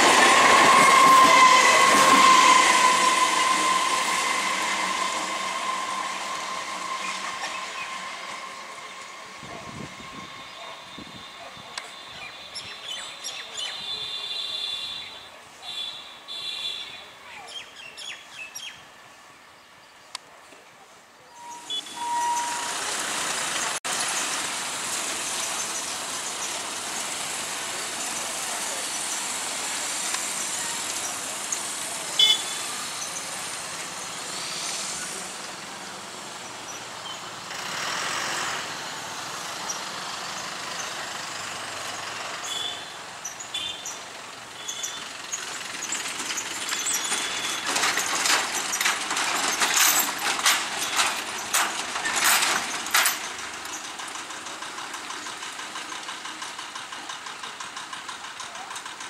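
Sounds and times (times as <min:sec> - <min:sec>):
loud rattling clatter: 0:45.3 - 0:59.0.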